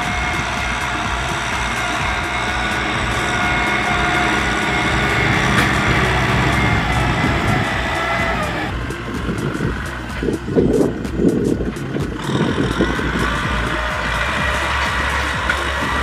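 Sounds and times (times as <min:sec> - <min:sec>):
tractor diesel engine under load: 0:00.0 - 0:16.0.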